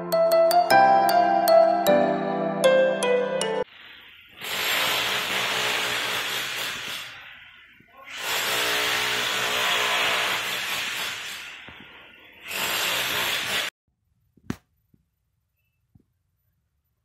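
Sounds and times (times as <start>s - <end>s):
piano notes: 0.0s - 3.7s
electric hammer drill: 4.4s - 13.7s.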